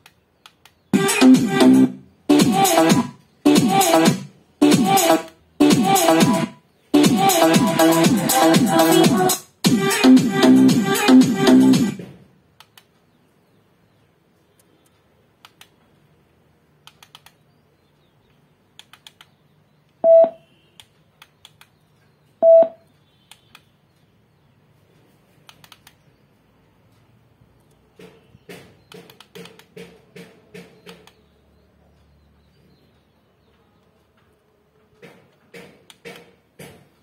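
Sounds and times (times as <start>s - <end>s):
short electronic beeps: 20.0s - 20.7s, 22.4s - 22.9s.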